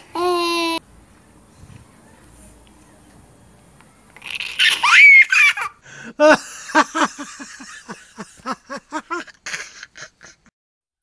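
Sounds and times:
squealing laugh: 0:04.2 - 0:06.4, 0:07.8 - 0:10.5
person laughing: 0:04.6 - 0:10.5.

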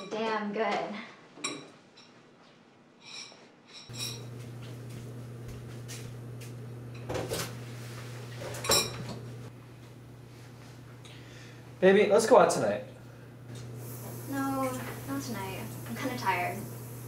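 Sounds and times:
ceramic dishes clinking: 0:03.9 - 0:04.3, 0:08.6 - 0:09.1
steady low hum: 0:03.9 - 0:17.0.

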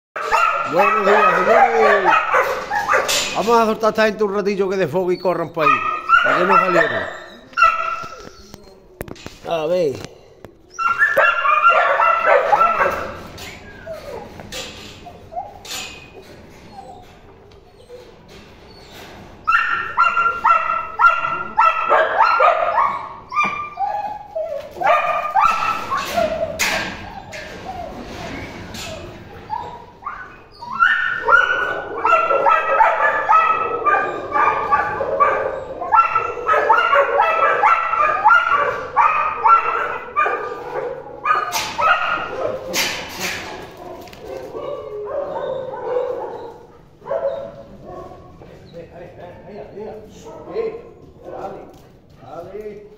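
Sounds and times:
dogs yipping: 0:00.2 - 0:03.6, 0:05.0 - 0:09.3, 0:10.6 - 0:48.8.

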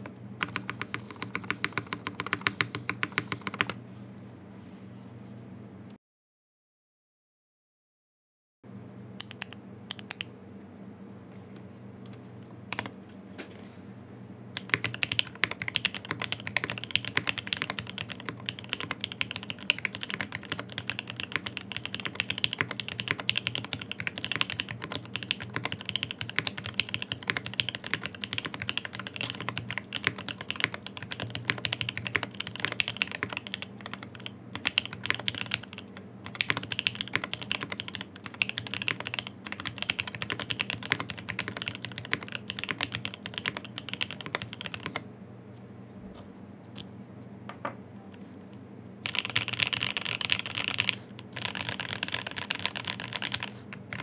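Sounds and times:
mechanical keyboard typing: 0:00.0 - 0:03.8, 0:12.7 - 0:12.9, 0:14.6 - 0:45.0, 0:49.0 - 0:54.0.

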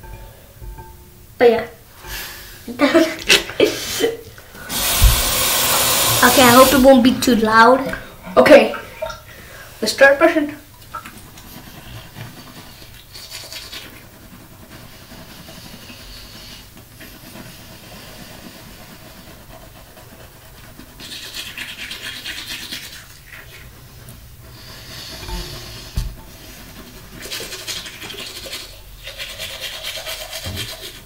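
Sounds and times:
toothbrush scrubbing teeth: 0:02.1 - 0:07.3, 0:11.0 - 0:31.0.

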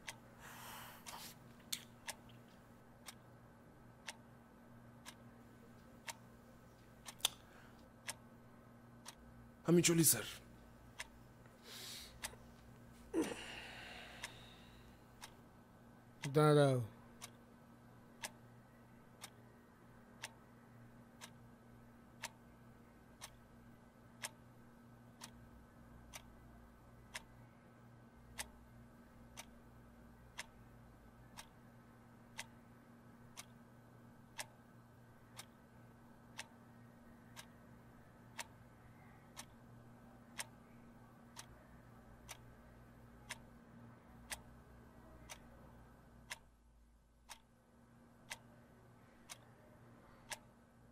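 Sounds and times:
clock ticking: 0:00.0 - 0:00.2, 0:03.0 - 0:03.2, 0:03.9 - 0:06.2, 0:08.0 - 0:08.3, 0:08.9 - 0:11.2, 0:15.2 - 0:15.4, 0:16.1 - 0:17.4, 0:18.1 - 0:19.4, 0:20.1 - 0:27.5, 0:28.2 - 0:31.6, 0:32.3 - 0:33.6, 0:34.2 - 0:34.7, 0:35.3 - 0:36.6, 0:37.2 - 0:37.6, 0:38.2 - 0:38.7, 0:39.3 - 0:39.7, 0:40.3 - 0:41.6, 0:42.2 - 0:42.6, 0:43.2 - 0:43.6, 0:44.2 - 0:44.6, 0:45.2 - 0:45.6, 0:46.2 - 0:46.6, 0:47.2 - 0:47.6, 0:48.2 - 0:48.6, 0:49.3 - 0:49.5, 0:50.3 - 0:50.6
faint low hum: 0:00.0 - 0:50.9.

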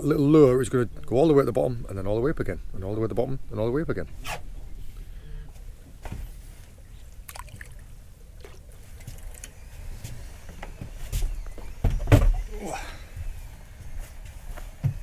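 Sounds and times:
water lapping against boat hull: 0:05.9 - 0:09.5.

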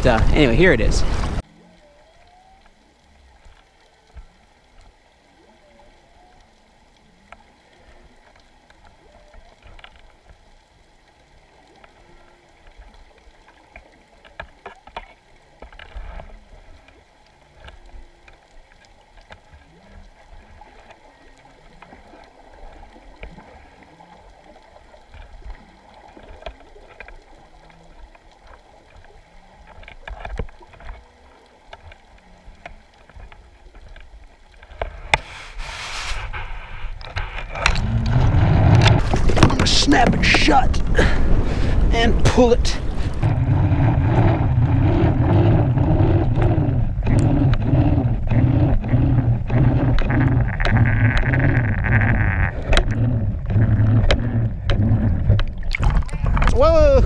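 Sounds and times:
muffled underwater rumble: 0:00.0 - 0:57.0
underwater clicks and knocks: 0:12.6 - 0:17.0, 0:25.0 - 0:31.0, 0:36.9 - 0:40.9, 0:42.2 - 0:57.0.

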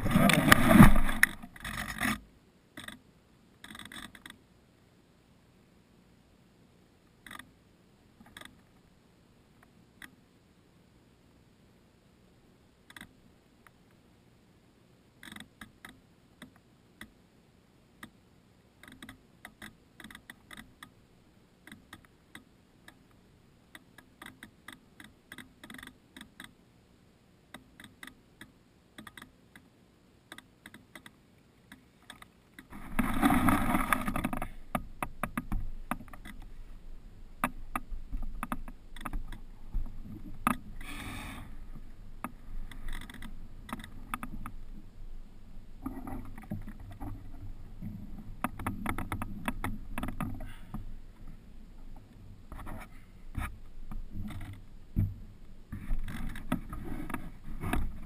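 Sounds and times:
rustling: 0:00.0 - 0:02.3, 0:31.6 - 0:58.0
small sharp ticks on housing: 0:02.8 - 0:03.0, 0:03.6 - 0:04.4, 0:07.2 - 0:07.6, 0:08.2 - 0:08.7, 0:12.9 - 0:13.8, 0:15.2 - 0:17.2, 0:18.8 - 0:21.0, 0:21.6 - 0:26.6, 0:27.5 - 0:32.7.

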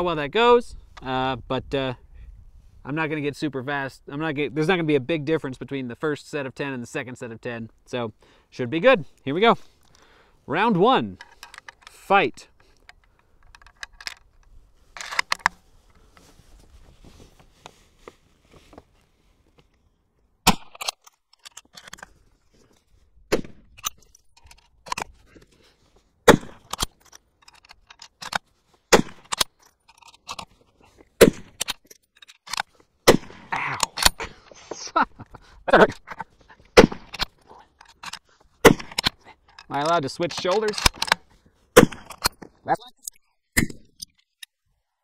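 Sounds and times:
rifle bolt being worked: 0:11.1 - 0:15.6, 0:20.5 - 0:22.2, 0:23.4 - 0:25.5, 0:26.3 - 0:28.4, 0:29.0 - 0:30.6, 0:31.4 - 0:32.8, 0:35.8 - 0:42.5
rifle shots: 0:26.3 - 0:26.7, 0:28.9 - 0:29.4, 0:31.2 - 0:31.7, 0:33.0 - 0:33.5, 0:36.8 - 0:37.2, 0:38.6 - 0:39.1, 0:41.8 - 0:42.2.

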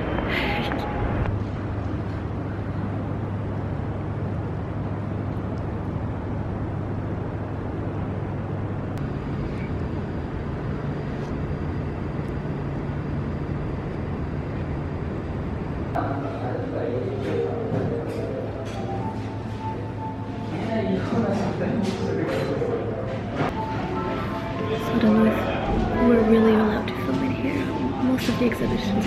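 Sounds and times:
low engine hum: 0:00.0 - 0:20.5
traffic rumble: 0:00.0 - 0:29.0.

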